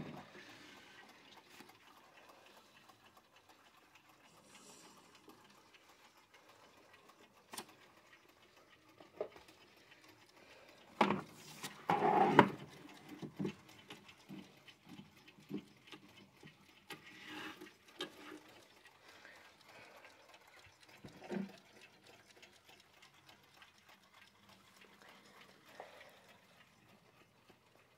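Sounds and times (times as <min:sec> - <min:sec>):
clatter of clocks: 0:00.0 - 0:27.9
faint clock ticking: 0:00.0 - 0:27.9
clocks being handled: 0:02.8 - 0:19.6.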